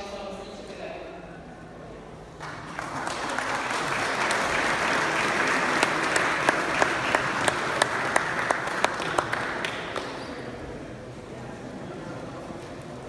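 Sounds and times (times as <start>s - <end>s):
audience applauding: 2.4s - 10.4s.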